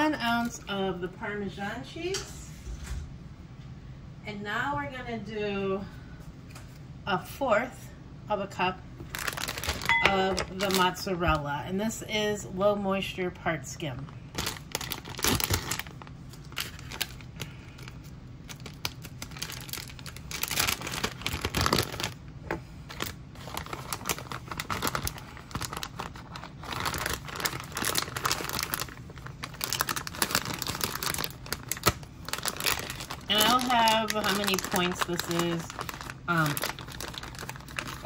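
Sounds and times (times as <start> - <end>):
plastic bag crinkling and rustling: 9.0 - 11.2, 13.9 - 38.0.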